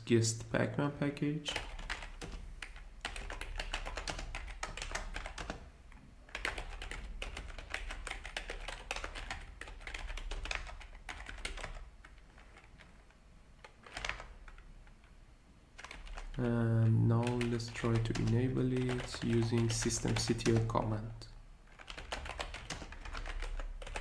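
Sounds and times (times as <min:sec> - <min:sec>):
computer keyboard typing: 0:01.5 - 0:05.7, 0:06.3 - 0:15.1, 0:15.8 - 0:20.9, 0:21.7 - 0:24.0.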